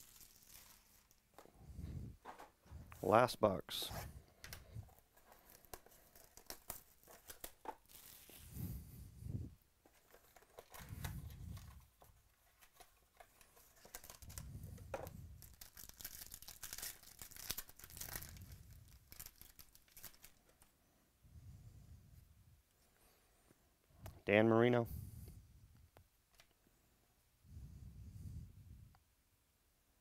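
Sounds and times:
plastic wrap tearing and crinkling: 0.0s - 1.4s, 5.0s - 8.5s, 12.6s - 20.6s.

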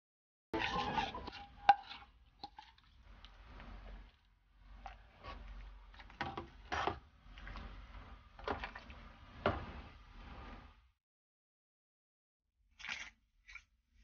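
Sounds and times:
ladle scraping metal pot: 0.6s - 10.8s.

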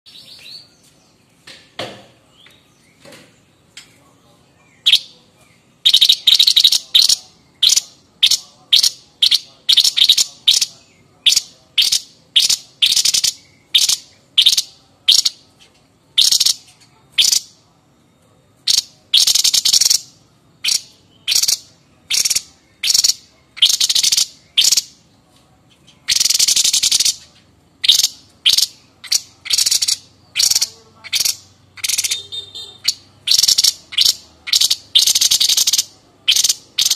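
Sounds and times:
bird harsh chattering call: 5.8s - 17.6s, 18.7s - 25.0s, 26.0s - 36.9s.

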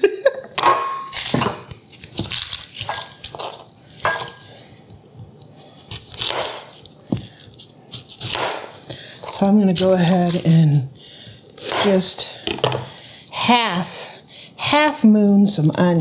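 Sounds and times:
knife crunching through onion: 1.0s - 13.3s.

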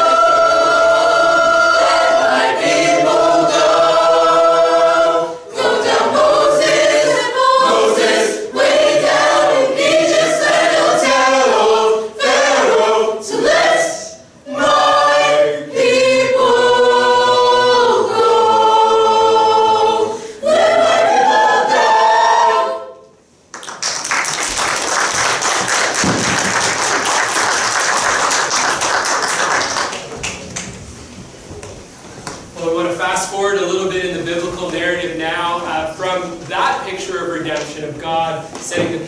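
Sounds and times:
choir singing held chords: 0.0s - 23.2s
audience applauding: 23.5s - 30.8s.

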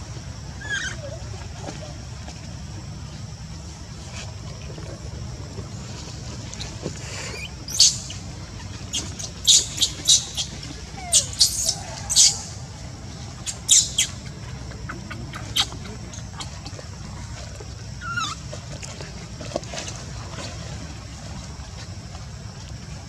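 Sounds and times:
low background rumble: 0.0s - 23.0s
baby monkey squealing: 0.6s - 1.1s, 7.4s - 8.2s, 8.9s - 12.6s, 13.4s - 14.3s, 14.9s - 16.5s, 18.0s - 18.4s.

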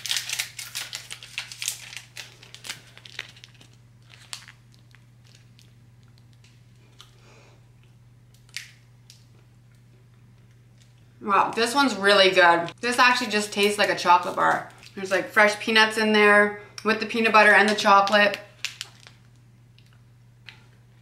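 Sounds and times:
plastic wrapper crinkling and tearing: 0.0s - 7.2s, 8.3s - 9.2s, 18.0s - 20.0s.

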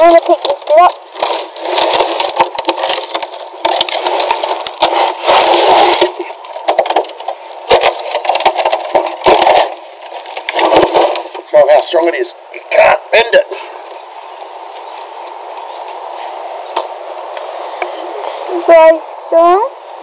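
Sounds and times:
fiberglass crackling and snapping: 0.0s - 11.5s.

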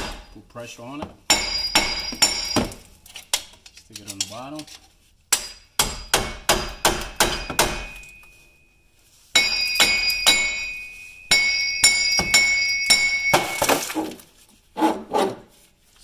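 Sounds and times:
metal ringing high tone: 7.8s - 13.7s.

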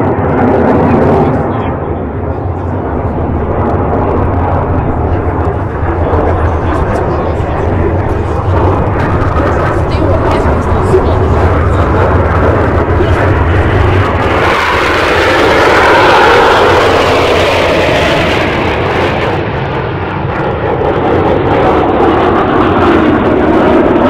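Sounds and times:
jet aircraft roaring past: 0.0s - 24.0s.

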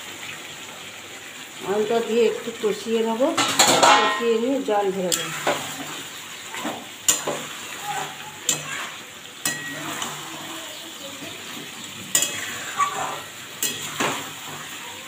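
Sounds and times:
food sizzling in oil: 0.0s - 15.0s
spatula stirring food: 3.4s - 15.0s.

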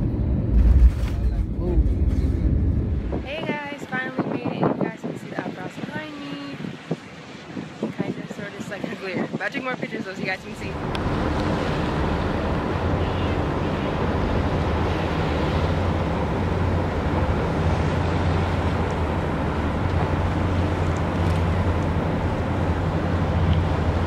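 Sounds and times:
ferry engine droning: 0.0s - 4.0s, 10.3s - 24.0s
wind on microphone: 0.0s - 24.0s
water along hull: 5.8s - 24.0s.

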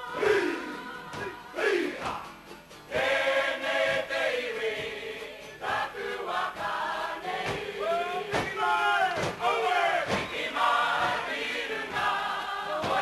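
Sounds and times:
group chanting in unison: 0.0s - 13.0s
sharp percussive strikes: 6.5s - 11.3s.

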